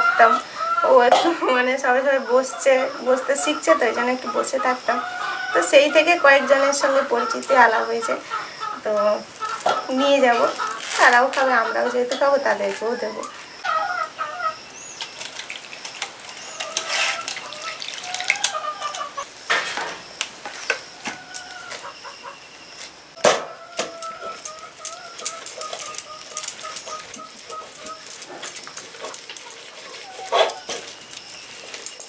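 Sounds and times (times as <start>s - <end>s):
pitched calls: 0.0s - 19.4s, 20.0s - 32.0s.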